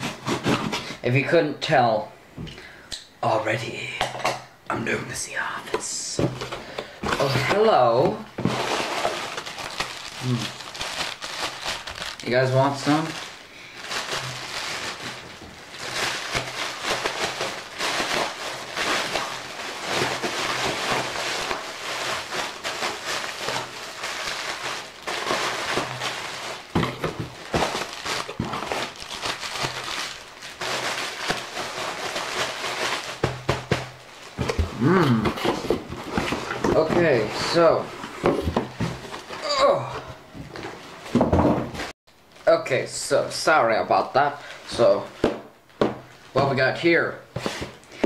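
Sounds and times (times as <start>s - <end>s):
plastic packaging crinkling: 5.9s - 39.5s.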